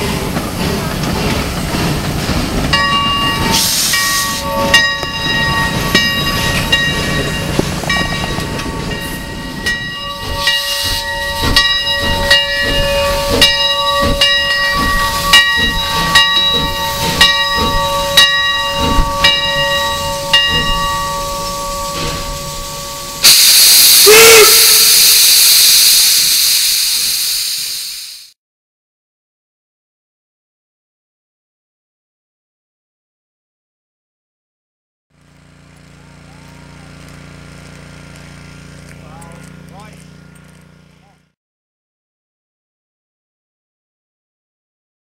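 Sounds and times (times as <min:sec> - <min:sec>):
steam engine chuffing: 0:00.0 - 0:28.2
locomotive bell ringing: 0:02.6 - 0:23.4
steam hissing: 0:03.3 - 0:04.6, 0:10.2 - 0:17.8, 0:18.6 - 0:28.4.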